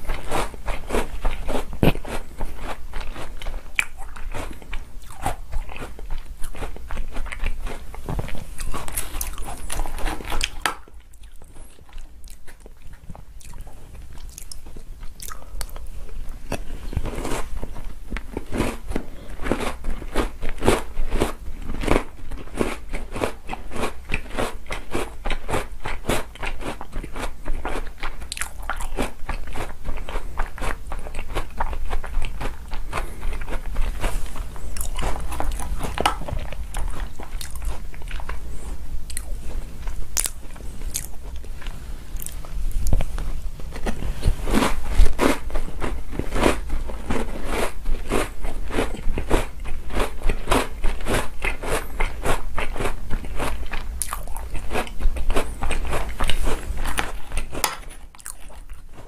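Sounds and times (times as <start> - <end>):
crunching and chewing cookies: 0.0 - 59.0.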